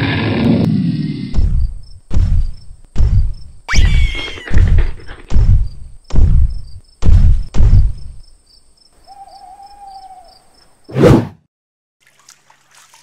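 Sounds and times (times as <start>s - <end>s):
crickets chirping: 0.2s - 10.9s
booming cartoon footstep thuds: 1.3s - 3.5s, 4.5s - 8.2s.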